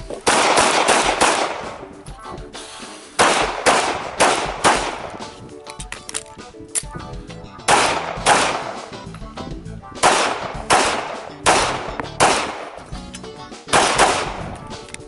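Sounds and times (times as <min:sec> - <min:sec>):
pistol shots: 0:00.2 - 0:01.9, 0:03.2 - 0:05.3, 0:07.7 - 0:08.9, 0:10.0 - 0:12.9, 0:13.7 - 0:14.6.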